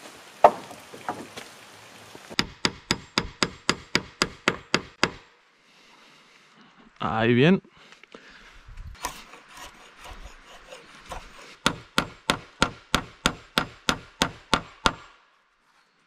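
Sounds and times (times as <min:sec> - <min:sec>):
scraping: 0:08.9 - 0:11.6.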